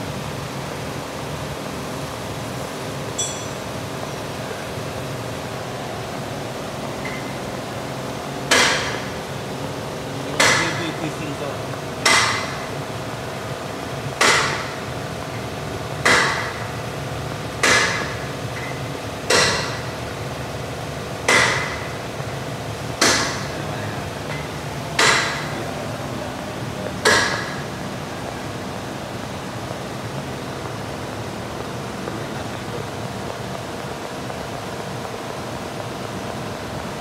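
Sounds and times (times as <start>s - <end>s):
steady background hum: 0.0s - 37.0s
hammer striking metal: 3.2s - 3.6s, 8.5s - 9.1s, 10.4s - 11.0s, 12.0s - 12.6s, 14.2s - 14.8s, 16.0s - 16.6s, 17.6s - 18.7s, 19.3s - 19.8s, 21.3s - 21.9s, 23.0s - 23.5s, 24.3s - 25.6s, 27.0s - 27.7s.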